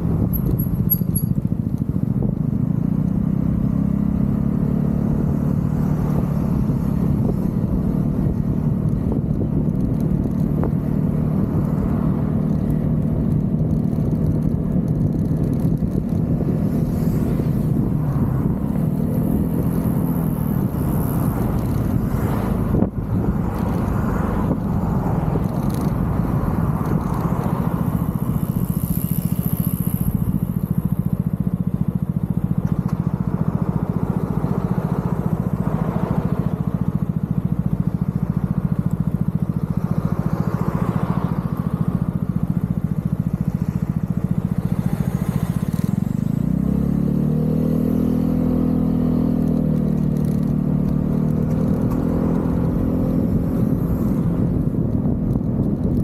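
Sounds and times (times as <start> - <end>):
scooter engine running: 0.0 - 56.0.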